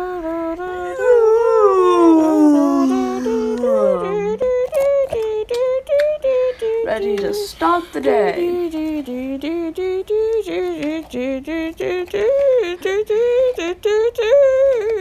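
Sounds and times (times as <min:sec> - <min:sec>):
person singing short held notes: 0:00.0 - 0:15.0
person howling: 0:00.8 - 0:04.8.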